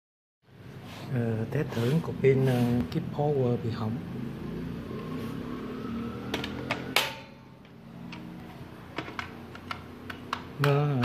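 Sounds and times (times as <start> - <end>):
plastic clicks and taps: 8.9 - 11.0.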